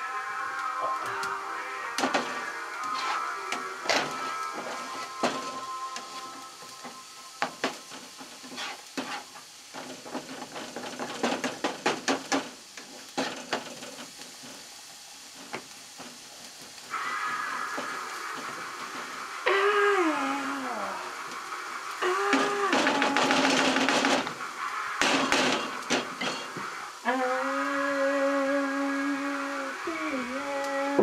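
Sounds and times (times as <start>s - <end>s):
garlic sizzling in oil: 0.0s - 31.0s
spatula scraping and tapping pan: 2.9s - 3.2s, 6.9s - 14.5s.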